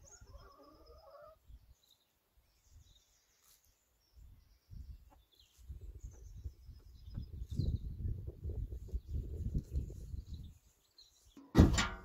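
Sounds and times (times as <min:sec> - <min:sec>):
hens calling: 0:00.0 - 0:01.5
faint high birdsong: 0:00.0 - 0:11.6.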